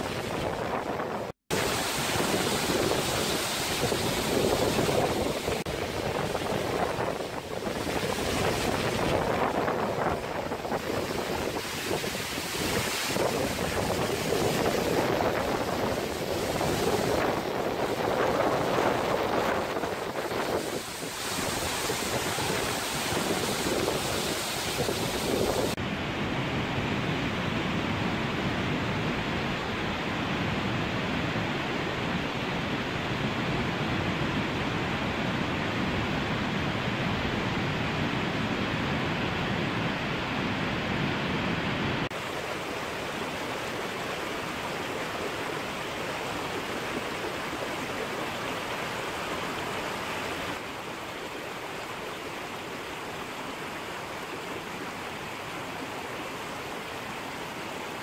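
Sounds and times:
wind buffeting microphone: 0:00.0 - 0:42.2
waterfall roaring: 0:00.0 - 0:58.0.

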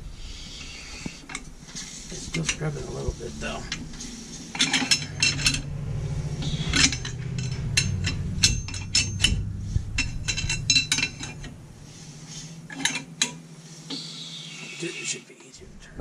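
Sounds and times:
low steady rumble: 0:00.0 - 0:14.4, 0:15.6 - 0:16.0
steel bar clinking on brake drum: 0:04.5 - 0:05.7, 0:06.4 - 0:11.6, 0:12.7 - 0:13.4.

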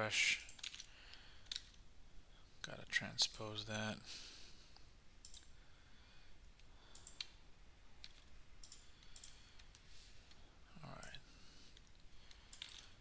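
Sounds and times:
faint computer mouse clicks: 0:06.9 - 0:07.4.

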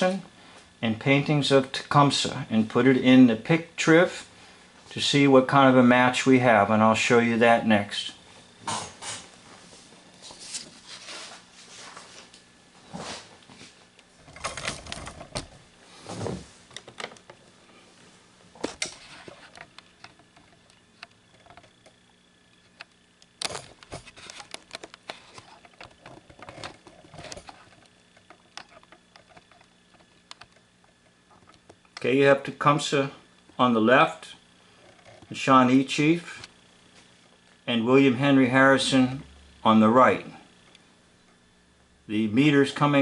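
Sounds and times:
faint steady hum: 0:00.0 - 0:43.0
clicks taps and rustles: 0:18.6 - 0:32.1.

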